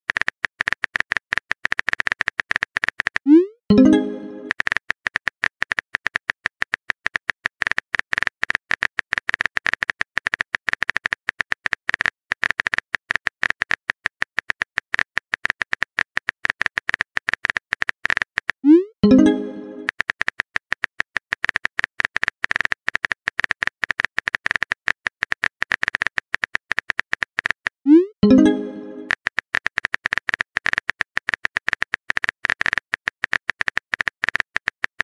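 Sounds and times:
rising message send sound: 3.3s - 4.5s, 18.7s - 19.9s, 27.9s - 29.1s.

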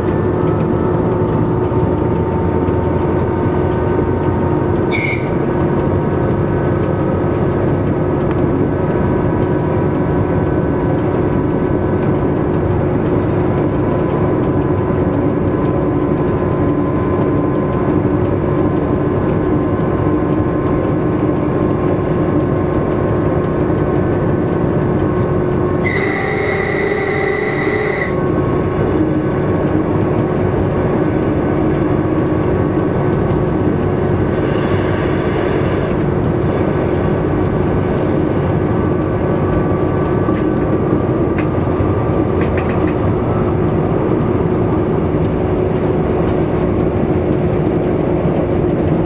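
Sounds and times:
train engine drone: 0.0s - 49.0s
wheels rumbling on track: 0.0s - 49.0s
short high train horn: 4.9s - 5.4s, 25.8s - 28.3s.

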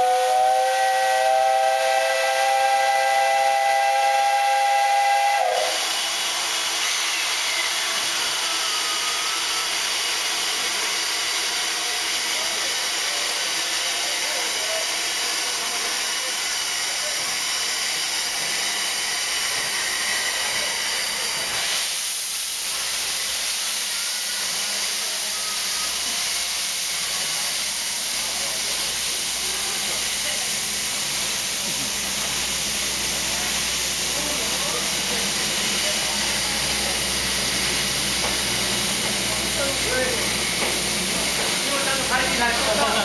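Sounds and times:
steam whistle: 0.0s - 6.1s
steam locomotive hissing: 0.0s - 43.0s.

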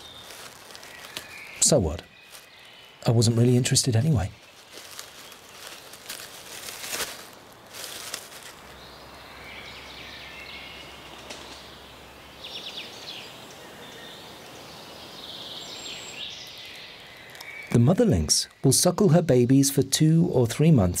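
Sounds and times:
rustling in dry leaves: 0.0s - 10.4s, 12.5s - 17.7s
background hiss: 0.0s - 20.3s
small birds chirping: 0.0s - 21.0s.

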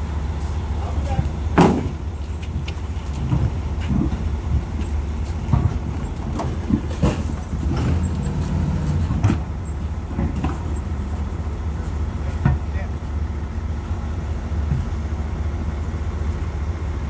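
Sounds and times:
engine rumbling: 0.0s - 17.0s
tyres knocking and clunking: 1.5s - 11.1s.

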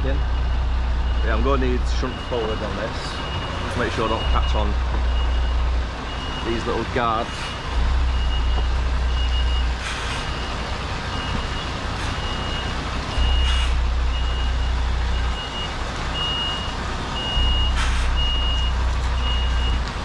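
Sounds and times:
diesel truck engine revving: 0.0s - 20.0s
truck reversing alarm beeping: 0.0s - 20.0s
air brake hisses: 9.8s - 10.4s, 17.8s - 18.2s.

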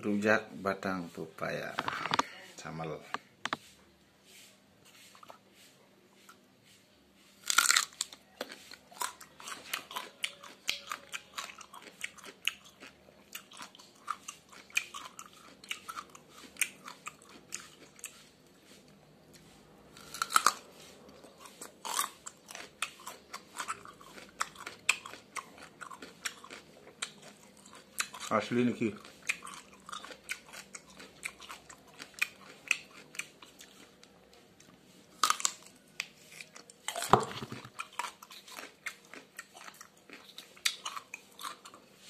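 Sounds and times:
person crunching raw stem: 7.4s - 18.3s, 19.9s - 41.9s.

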